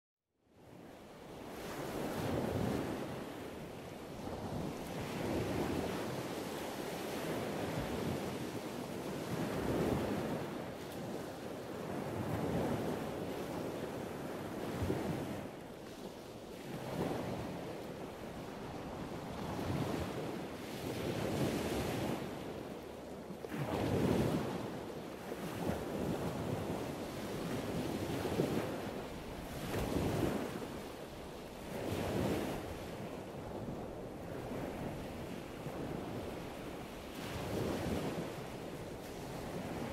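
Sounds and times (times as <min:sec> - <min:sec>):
surf washing onto shore: 0:23.4 - 0:39.9.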